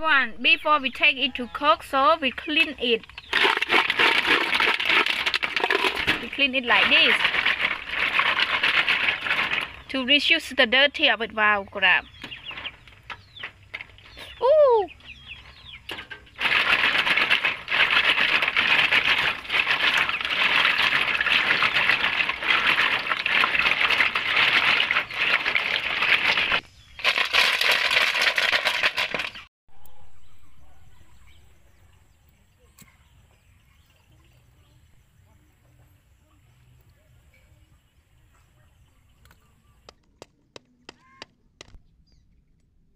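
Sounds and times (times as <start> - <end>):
snail shells clattering: 2.5 - 10.0, 15.1 - 29.4
water sloshing: 2.5 - 10.1, 15.9 - 29.3.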